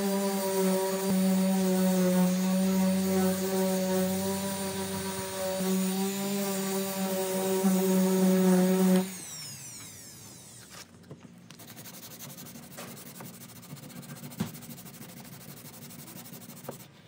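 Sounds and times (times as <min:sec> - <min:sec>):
orbital sander winding down: 0:00.0 - 0:10.9
sandpaper rubbing by hand: 0:11.5 - 0:17.0.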